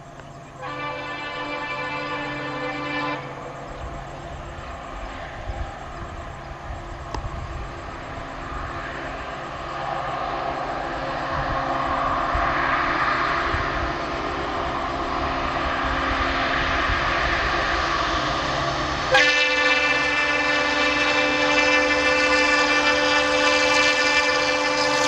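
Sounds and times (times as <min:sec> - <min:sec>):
locomotive diesel engine running: 0:00.0 - 0:25.0.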